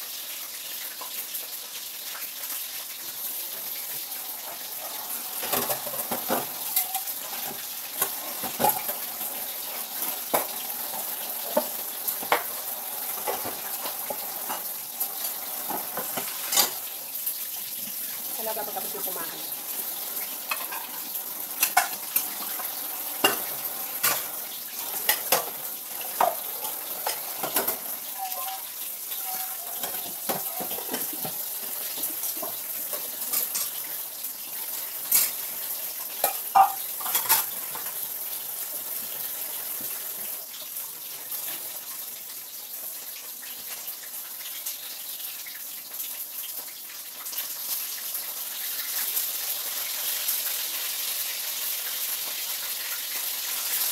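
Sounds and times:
food sizzling in a pan: 0:00.0 - 0:53.9
utensils and dishes clinking: 0:04.4 - 0:17.0, 0:20.0 - 0:33.9, 0:35.0 - 0:35.5, 0:36.2 - 0:38.0.

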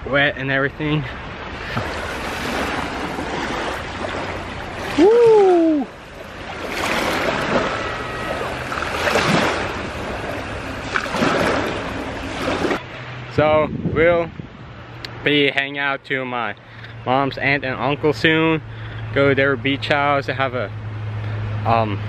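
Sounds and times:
small waves washing over sand: 0:00.9 - 0:13.3.

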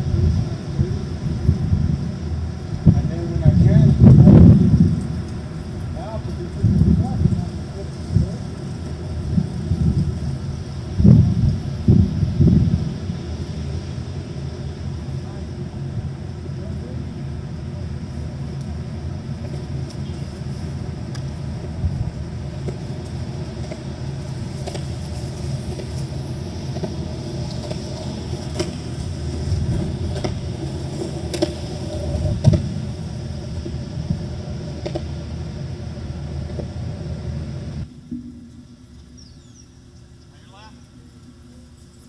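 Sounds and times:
low outdoor rumble: 0:00.0 - 0:42.0.

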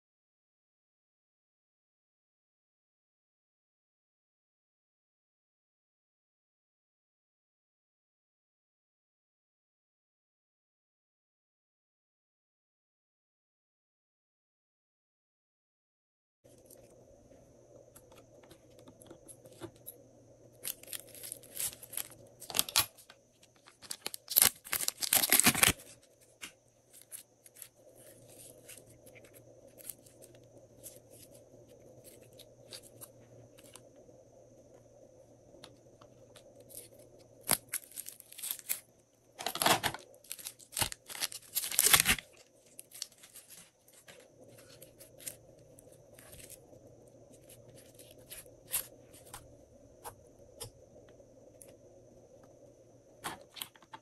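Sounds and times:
faint steady hum: 0:16.5 - 0:54.0
slime crackling and popping: 0:23.7 - 0:25.9, 0:40.2 - 0:43.5.

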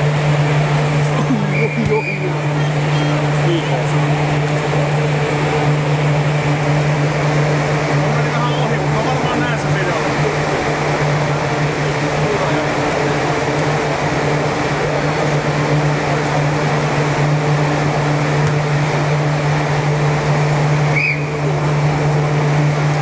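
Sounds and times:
blower fans droning: 0:00.0 - 0:23.0.

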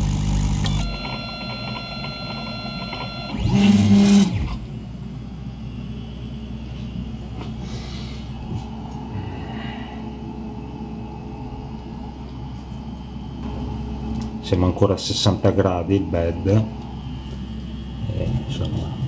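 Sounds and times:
printer motor buzz: 0:00.0 - 0:04.7
stepper motors whining: 0:00.0 - 0:09.4
printer hum: 0:00.0 - 0:19.0.

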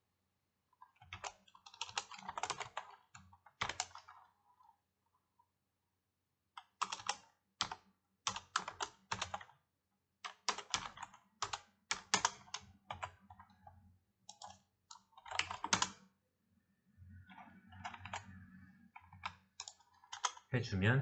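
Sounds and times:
typing on computer keyboard: 0:01.0 - 0:04.4, 0:06.6 - 0:09.6, 0:10.2 - 0:16.1, 0:17.2 - 0:20.5.

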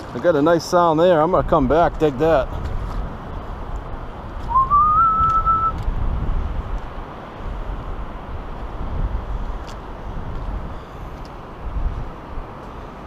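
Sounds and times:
wind rumble on microphone: 0:00.0 - 0:13.0
whistled note: 0:04.5 - 0:05.8.

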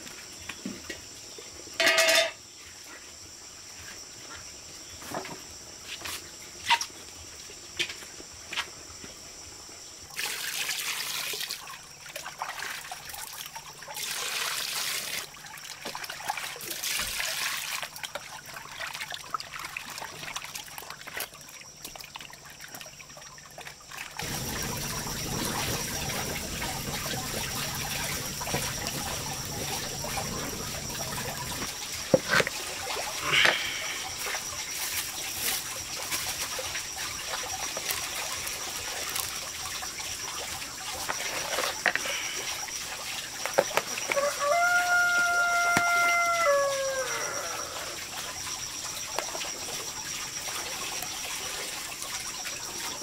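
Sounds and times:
water trickling: 0:10.1 - 0:53.0
wood fire hissing: 0:24.2 - 0:40.3, 0:41.0 - 0:44.3.

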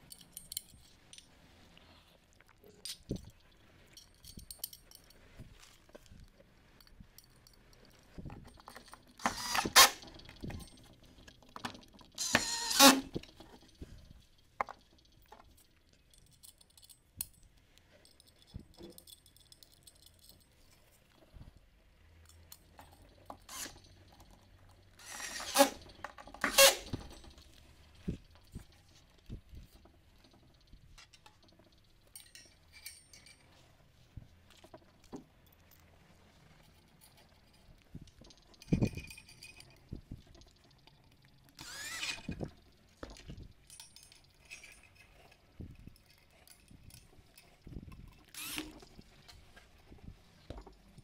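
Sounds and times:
metal parts clinking: 0:00.0 - 0:01.3, 0:02.7 - 0:05.2, 0:15.7 - 0:20.5, 0:31.0 - 0:33.4
cordless drill driving screws: 0:09.2 - 0:10.0, 0:12.2 - 0:13.2, 0:23.5 - 0:23.8, 0:25.0 - 0:25.8, 0:26.4 - 0:27.0, 0:41.6 - 0:42.3, 0:48.3 - 0:48.8.

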